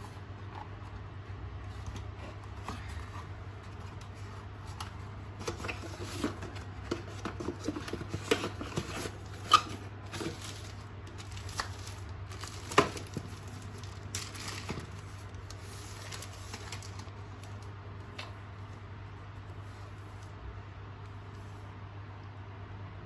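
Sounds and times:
plastic wrapping crinkling: 1.8 - 18.3.

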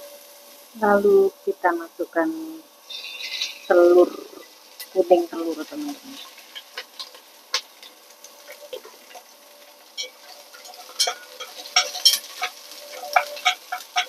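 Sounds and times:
oil crackling and spitting: 2.7 - 5.0
chopsticks stirring: 2.9 - 14.0.

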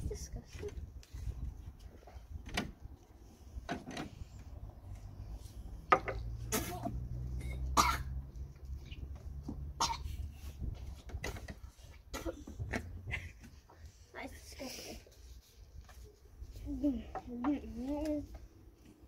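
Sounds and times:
boy coughing and gagging: 6.5 - 8.2, 9.8 - 10.2, 12.1 - 13.4.

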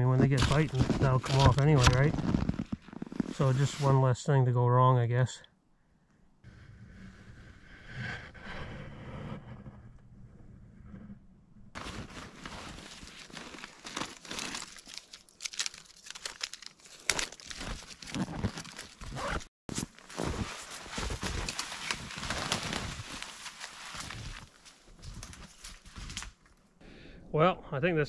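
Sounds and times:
rustling and crinkling of gear: 0.0 - 4.0, 11.7 - 26.8
footsteps through snow and brush: 11.8 - 26.4.

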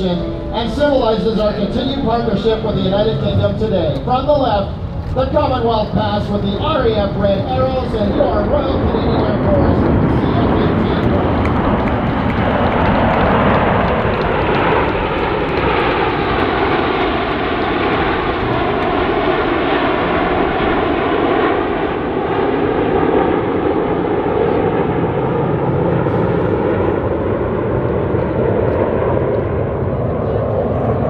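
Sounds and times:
jets flying past: 0.0 - 31.0.

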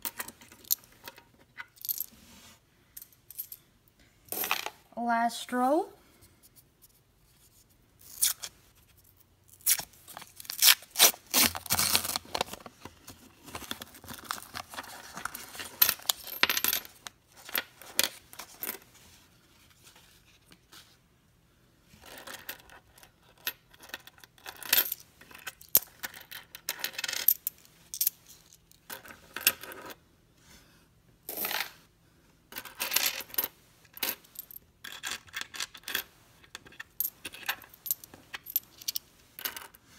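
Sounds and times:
coins clinking on wooden table: 0.0 - 2.1, 4.3 - 4.8, 15.8 - 18.8, 22.0 - 28.1, 31.3 - 31.7, 32.5 - 39.8.

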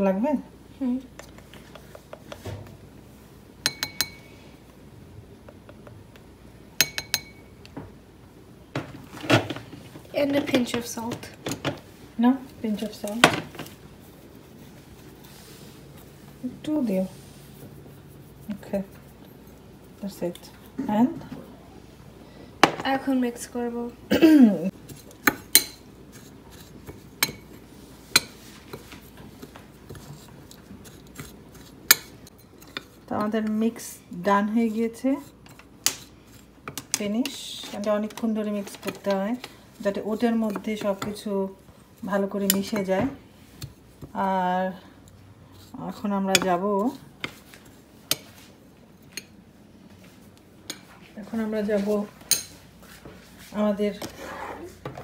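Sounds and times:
dishes and glassware clinking: 3.6 - 4.3, 6.8 - 7.5.

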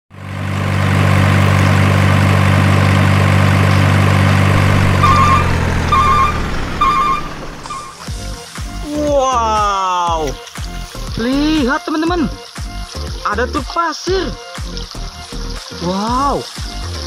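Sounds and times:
heavy engine idling: 0.1 - 8.1
two-note electronic beep: 4.6 - 8.0.

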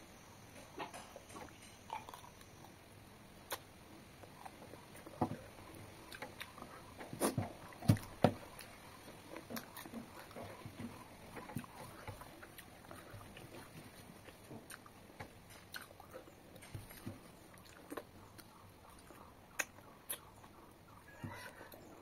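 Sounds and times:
wet mouth smacks and chewing: 15.6 - 20.6.

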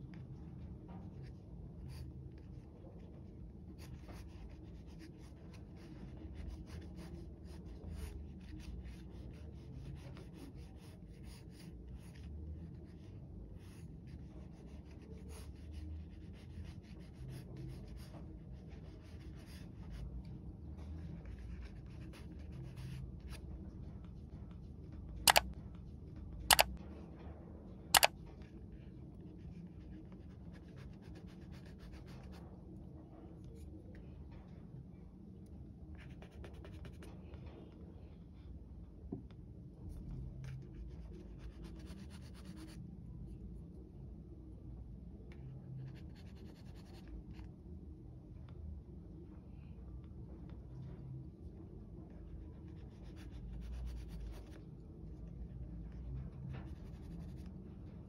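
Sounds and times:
pencil scratching on paper: 1.8 - 20.0, 21.1 - 23.4, 40.5 - 42.8, 52.5 - 54.6, 56.5 - 57.5.

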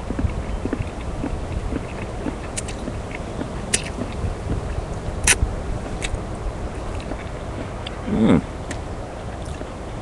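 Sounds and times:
low background noise: 0.0 - 10.0
eating clicks: 0.1 - 4.3.

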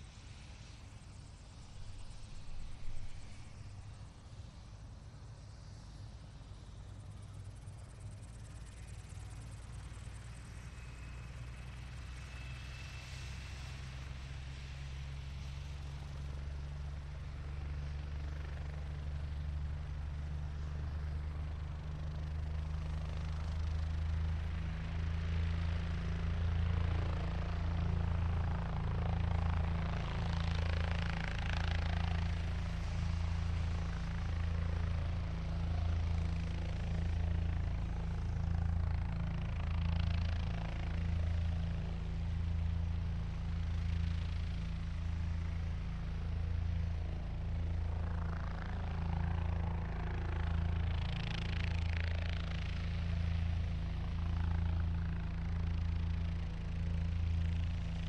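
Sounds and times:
helicopter engine and rotor drone: 0.0 - 58.0.

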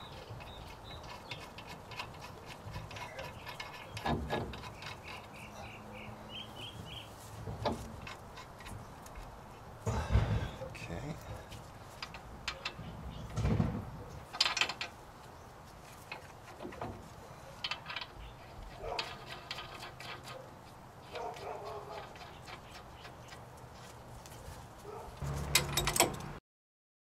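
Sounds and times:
metal clicks of tools: 25.3 - 26.4.

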